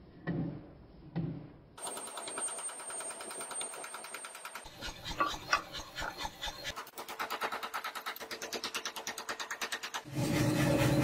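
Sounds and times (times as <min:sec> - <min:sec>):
rapid hammer strikes rattling: 0:01.8 - 0:10.1.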